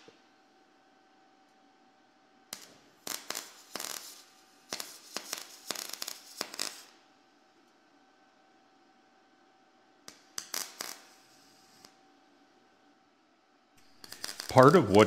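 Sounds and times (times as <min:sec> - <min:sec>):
welding arc crackling and sputtering: 0:02.5 - 0:07.0, 0:10.1 - 0:12.0, 0:13.8 - 0:15.0.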